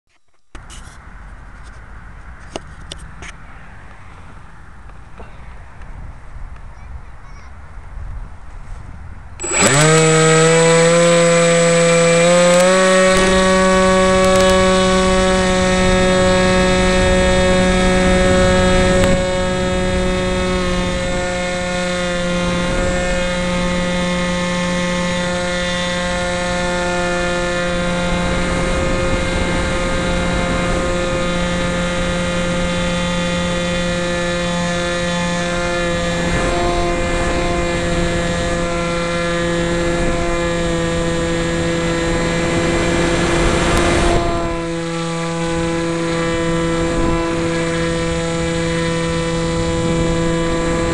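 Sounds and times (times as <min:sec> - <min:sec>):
electric motor and propeller whine: 0:00.4 - 0:06.9, 0:08.2 - 0:50.9
wind rushing over microphone: 0:00.6 - 0:50.9.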